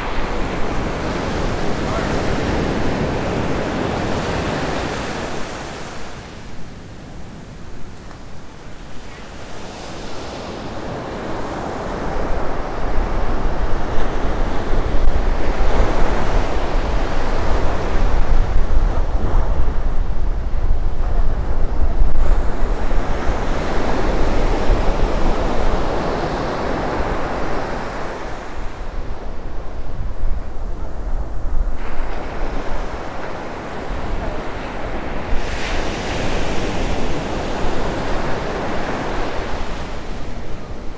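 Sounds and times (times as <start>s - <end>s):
small waves breaking on sand: 0.0s - 18.3s, 31.8s - 40.9s
wind rumbling on microphone: 0.0s - 40.9s.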